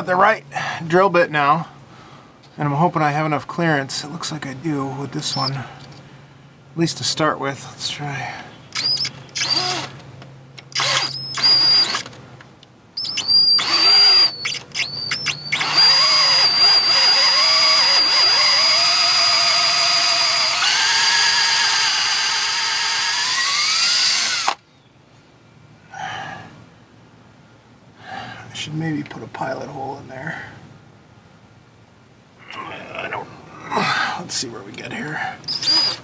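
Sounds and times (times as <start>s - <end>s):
cordless drill whining: 8.8s - 10.0s, 10.7s - 12.2s, 13.0s - 24.6s, 35.4s - 36.0s.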